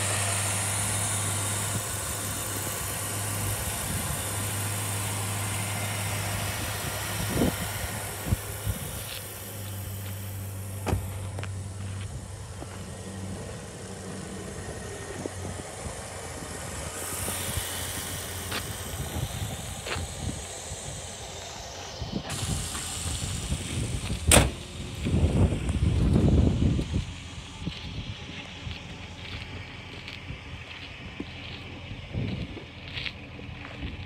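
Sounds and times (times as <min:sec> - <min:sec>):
steady low hum: 0:00.0 - 0:34.0
wind on microphone: 0:06.6 - 0:09.1, 0:14.7 - 0:28.6.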